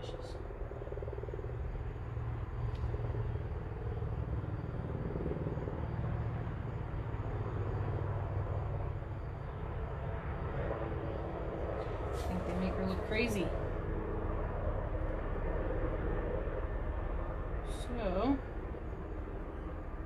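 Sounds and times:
low background rumble: 0:00.0 - 0:20.0.

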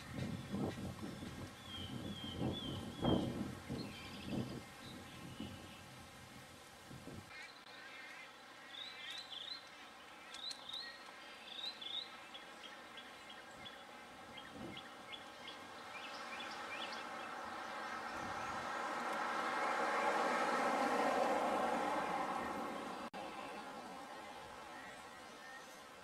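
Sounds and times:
birds chirping: 0:00.0 - 0:26.0
engine-like rushing noise: 0:16.2 - 0:24.2.

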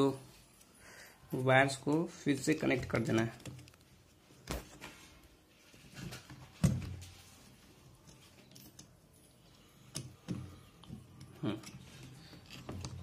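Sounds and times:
soft handling noise: 0:00.1 - 0:13.0
connectors clicking onto terminals: 0:08.0 - 0:13.0.

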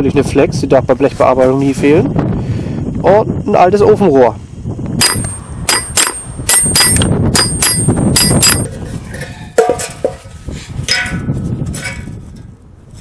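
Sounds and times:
hammer striking steel plates: 0:05.0 - 0:08.7, 0:10.9 - 0:11.4
dull metal clanks: 0:05.0 - 0:12.5.

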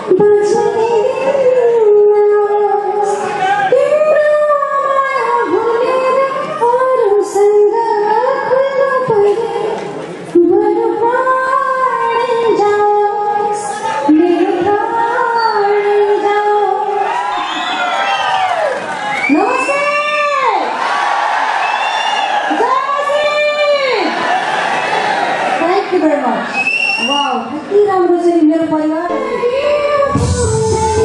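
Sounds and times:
woman singing into microphone: 0:00.0 - 0:16.9, 0:27.8 - 0:31.0.

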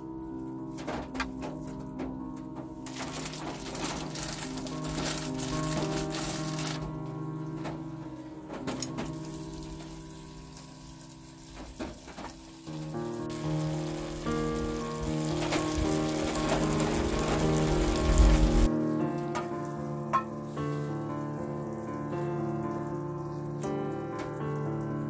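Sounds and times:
soft background music: 0:00.0 - 0:25.0
broth sizzling in a skillet: 0:08.2 - 0:25.0.

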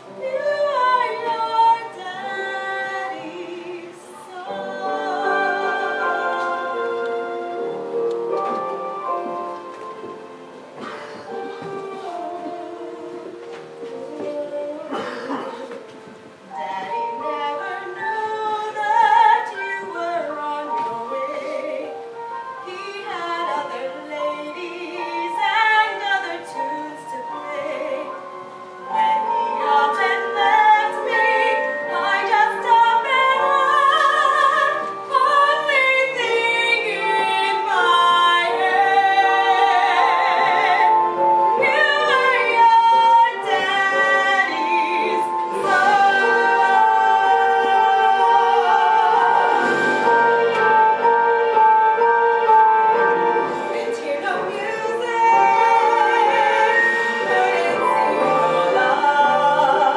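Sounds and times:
woman singing a ballad: 0:00.1 - 0:07.8, 0:11.9 - 0:15.9, 0:16.5 - 0:28.2, 0:28.9 - 0:52.5, 0:53.5 - 0:59.9.

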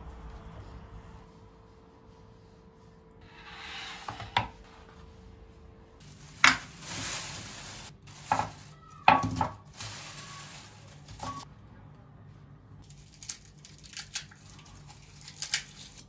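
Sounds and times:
plastic bag rustling: 0:06.0 - 0:11.5.

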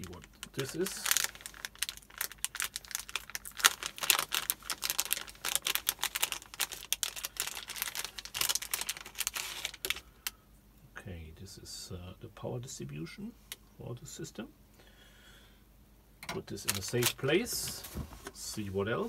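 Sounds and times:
plastic bag crinkling: 0:00.0 - 0:10.1, 0:16.5 - 0:18.0.

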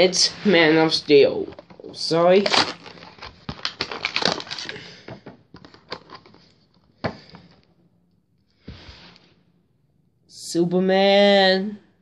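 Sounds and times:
packaging crinkling and tearing: 0:01.5 - 0:06.6.

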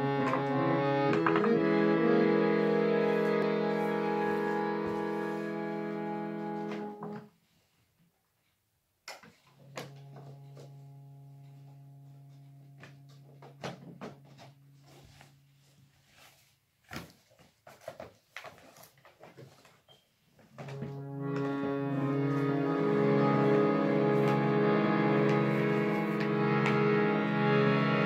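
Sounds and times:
harmonium chord: 0:00.0 - 0:07.1, 0:09.8 - 0:13.3, 0:20.6 - 0:28.0.

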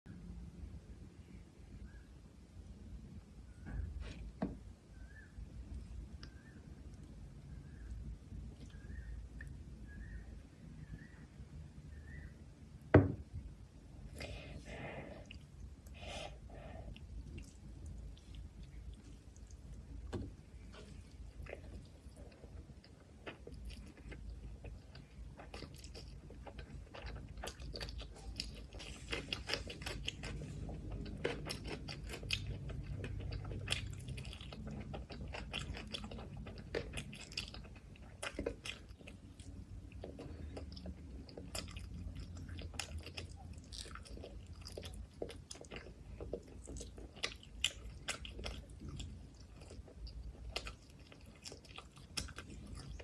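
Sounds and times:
chewing food: 0:14.0 - 0:53.0.

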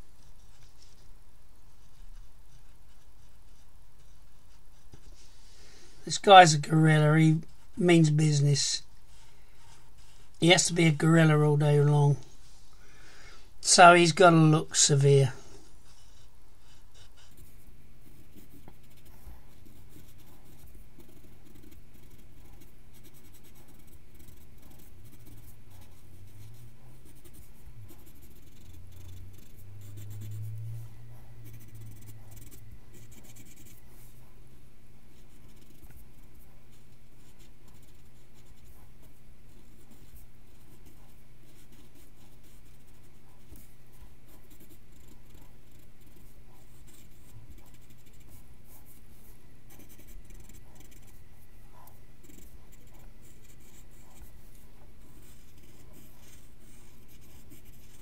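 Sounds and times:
pencil scratching on paper: 0:01.7 - 0:12.1, 0:13.6 - 0:58.0.

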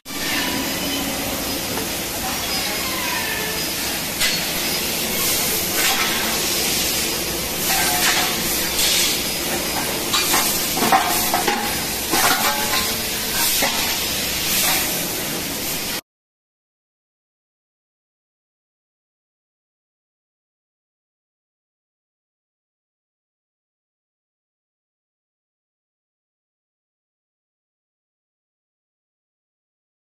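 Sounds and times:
hissing machine noise: 0:00.1 - 0:16.0.

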